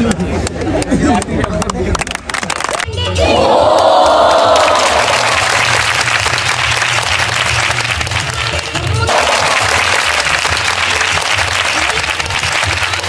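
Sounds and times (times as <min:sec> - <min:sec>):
audience applause: 0:03.5 - 0:13.0.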